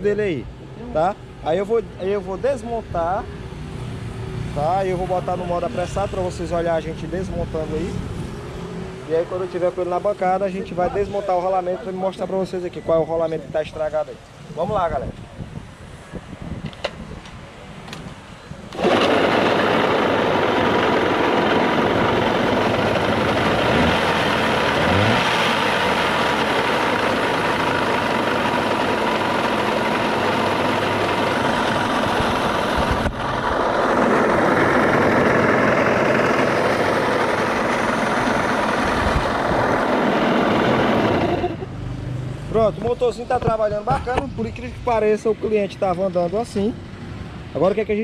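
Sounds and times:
outboard motor running: 18.7 - 41.6.

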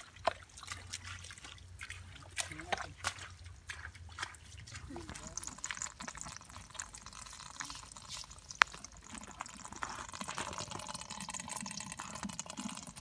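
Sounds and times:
water splashing and trickling: 0.0 - 13.0
crab legs clicking and scraping: 4.7 - 11.0.

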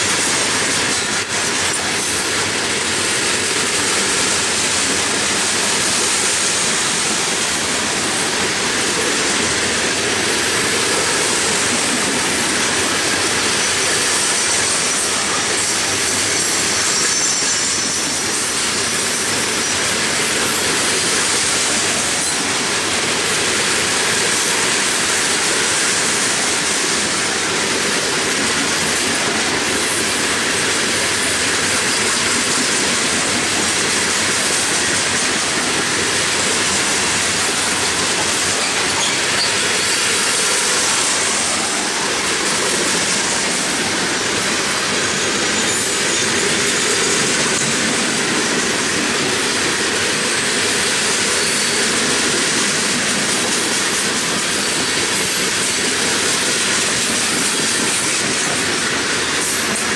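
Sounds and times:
freight train rolling past: 0.0 - 59.9
high wheel squeal: 12.9 - 21.3, 35.8 - 47.7, 50.6 - 52.4.

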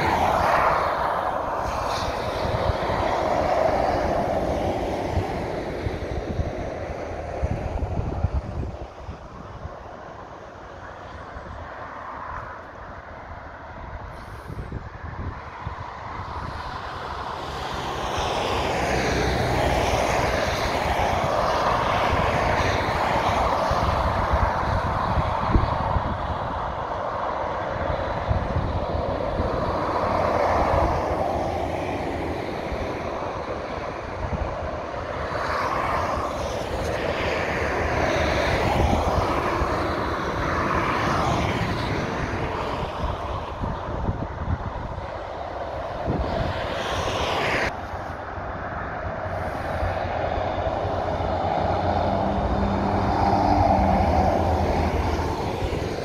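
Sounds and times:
traffic passing close by: 0.0 - 56.0.

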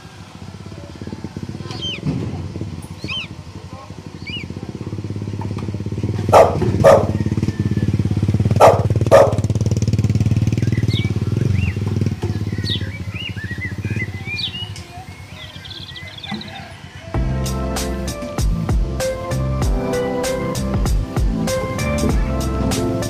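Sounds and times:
birds chirping faintly: 0.0 - 18.4
motor engine running: 0.0 - 23.0.

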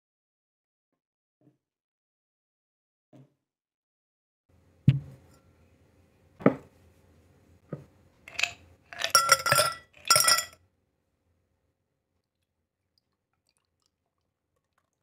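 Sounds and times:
glass set down on a table: 6.4 - 6.7
ice cubes clinking in a glass: 8.3 - 10.6.

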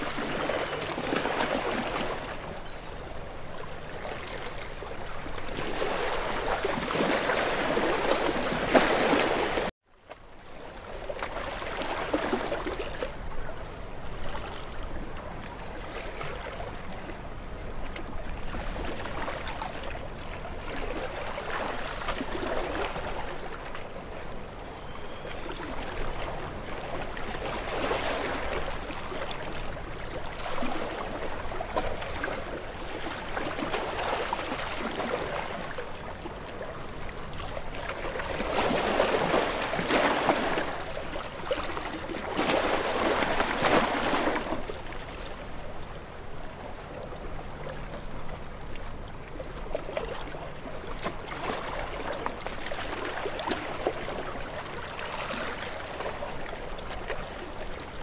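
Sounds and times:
small waves washing on shore: 0.0 - 58.0.

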